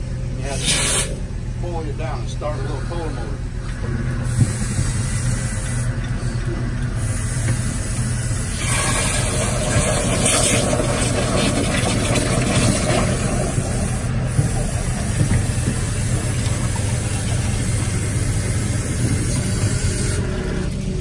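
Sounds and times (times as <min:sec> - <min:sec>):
hydraulic power unit engine: 0:00.0 - 0:21.0
loud hiss: 0:00.4 - 0:01.2, 0:07.0 - 0:20.3.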